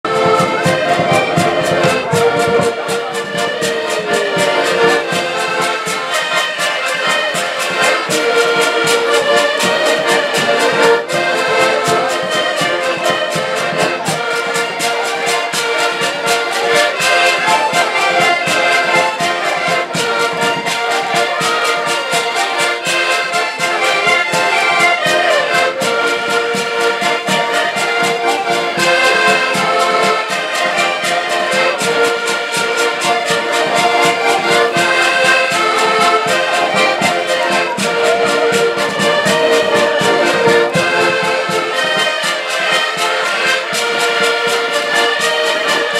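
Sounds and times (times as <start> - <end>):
accordion ensemble playing: 0.0 - 45.9.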